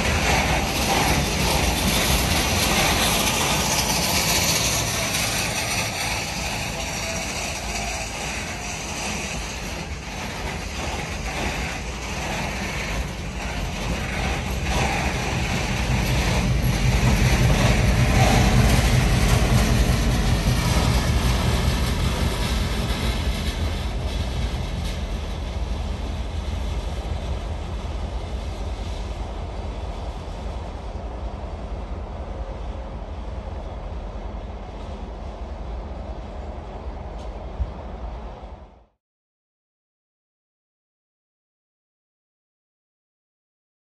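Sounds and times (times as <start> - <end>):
rolling wheel and wagon noise: 0.0 - 30.7
locomotive engine rumble: 0.0 - 38.7.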